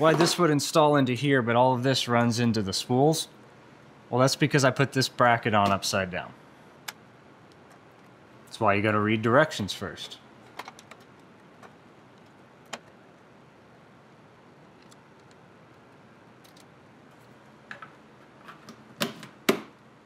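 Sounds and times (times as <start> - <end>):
small parts clicking and tapping: 14.8 - 17.9.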